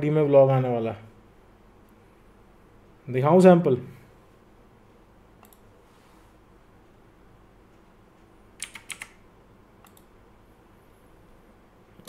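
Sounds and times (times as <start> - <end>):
keyboard keys clicking: 8.6 - 9.2.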